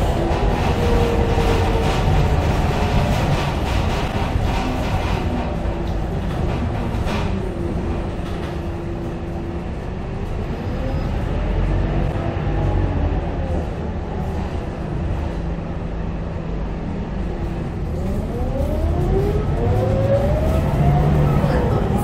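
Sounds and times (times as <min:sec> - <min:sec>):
bus drivetrain rumble: 0:00.0 - 0:22.0
bus whine rising in pitch: 0:17.6 - 0:22.0.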